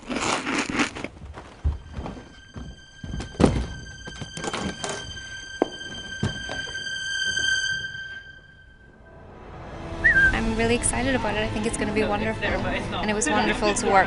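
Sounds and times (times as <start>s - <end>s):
suitcase thudding on wooden floor: 3.0s - 5.0s.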